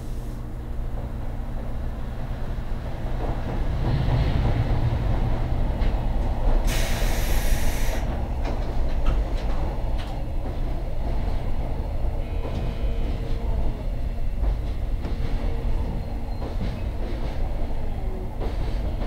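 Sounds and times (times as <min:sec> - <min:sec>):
freight train rumbling past: 0:00.0 - 0:19.0
burst of hissing: 0:06.7 - 0:08.0.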